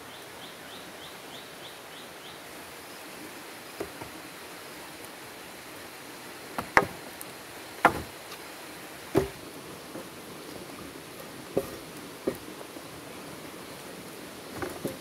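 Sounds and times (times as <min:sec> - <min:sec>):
steady background hiss: 0:00.0 - 0:15.0
machete chopping wood: 0:06.6 - 0:07.0, 0:07.8 - 0:08.2, 0:09.2 - 0:09.4.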